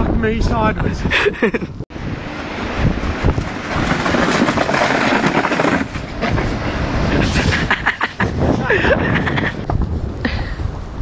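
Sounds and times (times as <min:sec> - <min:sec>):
snowboard scraping down steps: 0:03.2 - 0:08.0.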